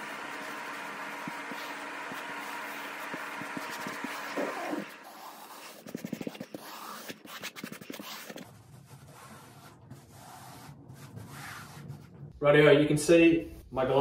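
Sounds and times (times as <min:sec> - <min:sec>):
hands rubbing fibreglass cloth: 0:00.4 - 0:12.2.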